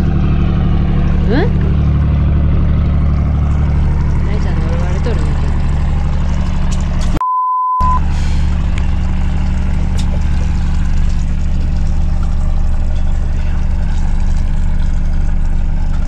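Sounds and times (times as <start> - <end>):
boat engine idling: 0.0 - 7.2, 8.0 - 16.0
censor bleep: 7.2 - 8.1.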